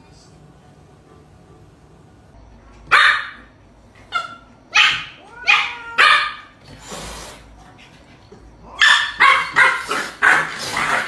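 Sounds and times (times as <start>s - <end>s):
puppy barking: 2.9s - 3.5s, 4.1s - 6.5s, 8.8s - 11.0s.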